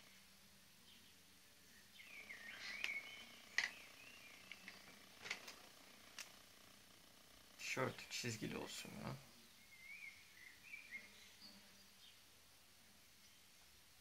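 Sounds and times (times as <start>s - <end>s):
faint squeaky chirping tones: 1.6s - 12.2s
pens clicking on tabletop: 3.6s - 3.8s.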